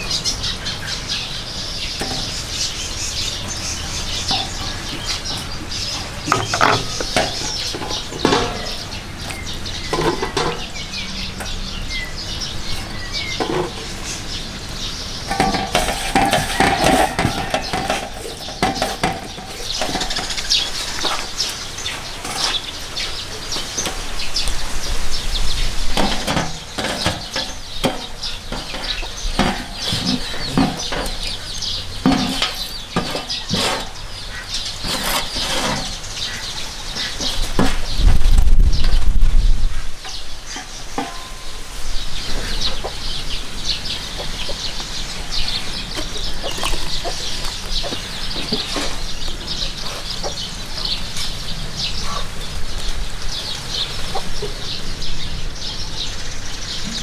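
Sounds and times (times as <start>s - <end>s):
birds calling: 0.0s - 57.0s
cooking utensils clinking: 3.3s - 11.6s, 15.3s - 21.2s, 25.9s - 33.9s, 40.5s - 41.6s.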